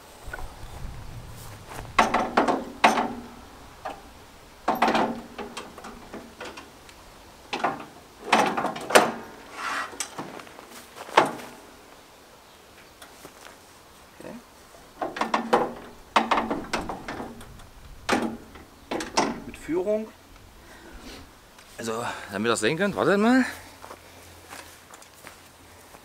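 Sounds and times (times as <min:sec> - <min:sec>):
steel table rolling rattles: 0:01.4 - 0:10.6, 0:14.8 - 0:19.9
metal clunks: 0:01.6 - 0:10.5, 0:11.1 - 0:11.7, 0:14.8 - 0:19.8.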